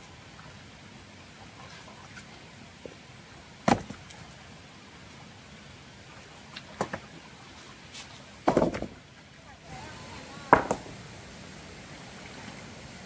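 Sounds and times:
steady low hiss: 0.0 - 13.0
sharp knocks: 10.5 - 10.9.

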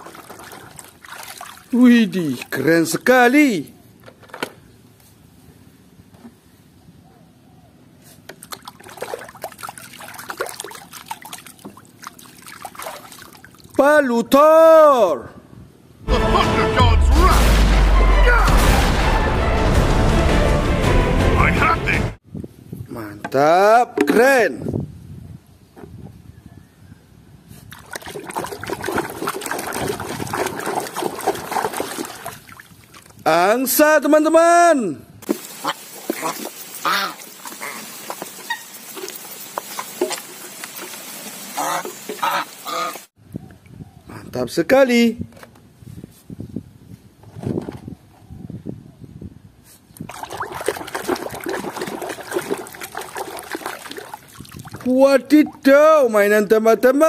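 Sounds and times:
small splashes and clicks: 0.0 - 2.6, 8.3 - 13.8, 27.7 - 33.2, 36.0 - 41.1, 50.0 - 54.9
water splashing and trickling: 0.0 - 2.7, 8.3 - 13.8, 27.7 - 33.3, 35.2 - 43.2, 50.0 - 55.9.

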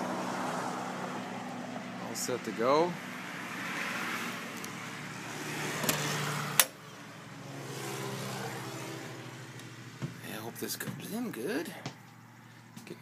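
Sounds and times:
engine-like hum: 0.0 - 13.0.

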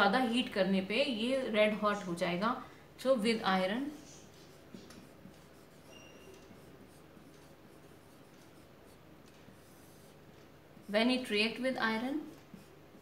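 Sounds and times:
marker writing on whiteboard: 4.0 - 13.0.

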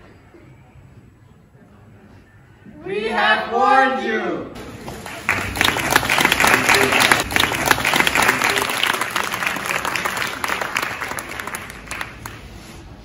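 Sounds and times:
audience applauding: 4.7 - 12.7.

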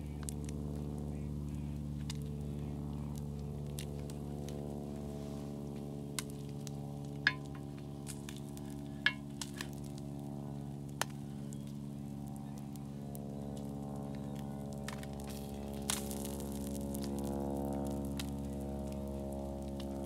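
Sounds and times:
steady low hum: 0.0 - 20.0
frying pan clinking on griddle: 7.3 - 7.5.

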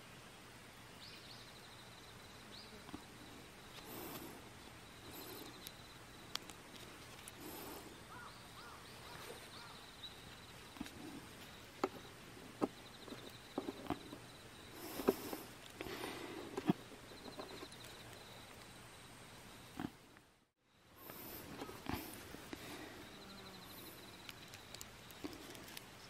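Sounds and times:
insect trilling: 1.5 - 20.0, 20.7 - 25.8
wire cable clicking and rustling: 24.2 - 26.0.

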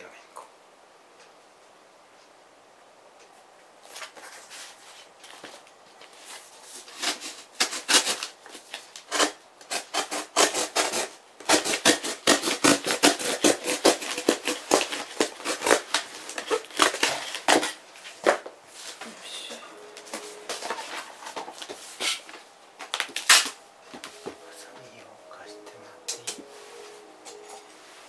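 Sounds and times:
cardboard crackling and creaking: 13.8 - 19.1.

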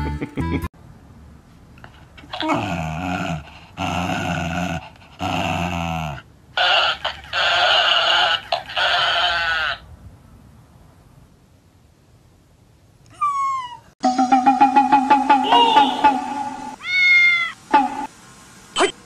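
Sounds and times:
dog growling: 2.2 - 6.3.

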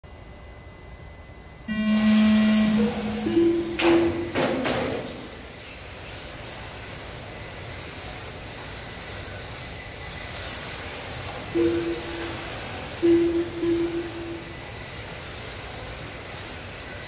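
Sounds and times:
electric model cars whining: 1.7 - 4.3
electronic beeps: 1.7 - 4.3, 11.5 - 12.4, 13.0 - 14.7.

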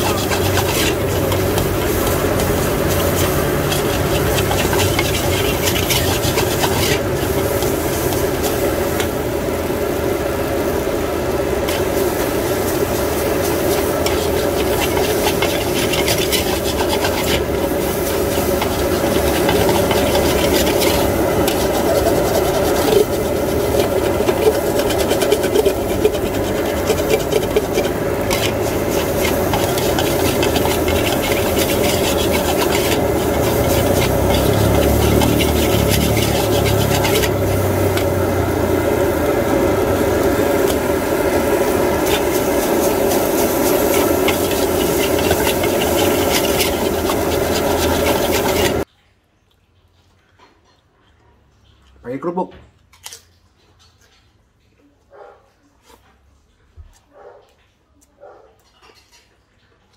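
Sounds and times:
metal spatula scraping a wok: 0.0 - 48.9
steady background noise: 0.0 - 52.2.

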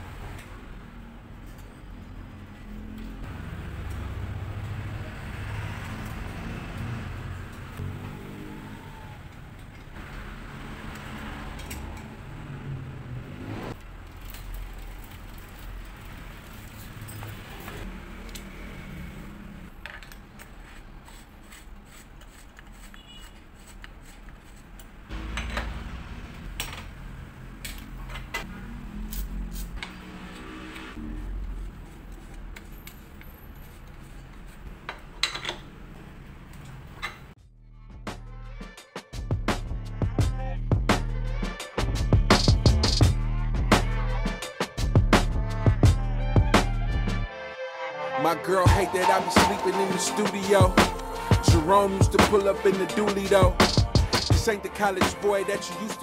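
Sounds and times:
street traffic rumble: 0.0 - 37.4, 48.6 - 56.0
metal tools clinking on bicycle parts: 35.2 - 35.7.

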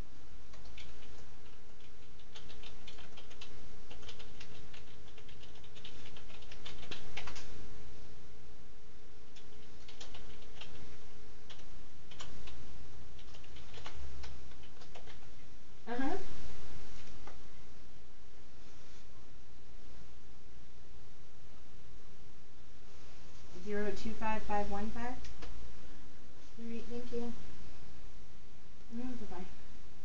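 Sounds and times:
cat licking with wet clicks: 0.5 - 7.4.

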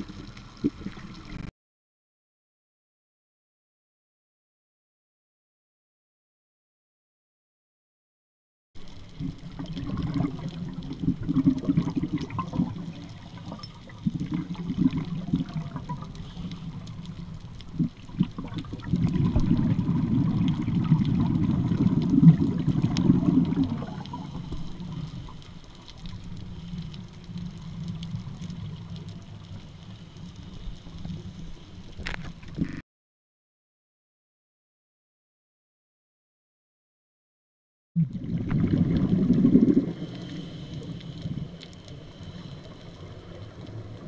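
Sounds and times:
regulator bubbles underwater: 0.0 - 1.5, 8.8 - 32.8, 38.0 - 44.0
faint clicks: 22.9 - 32.8, 40.1 - 44.0.

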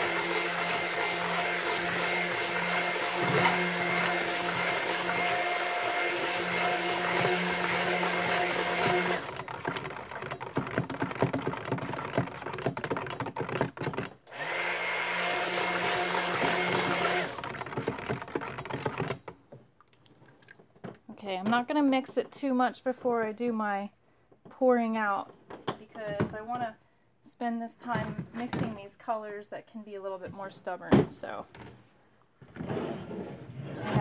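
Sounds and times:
stick blender motor hum: 0.0 - 19.2.

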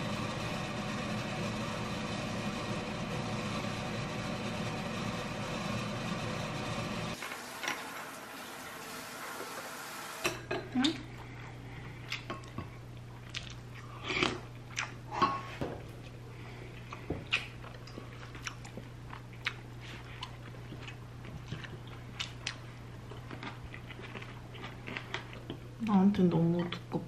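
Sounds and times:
steady low hum: 10.4 - 27.0
person chewing food: 11.1 - 25.7.

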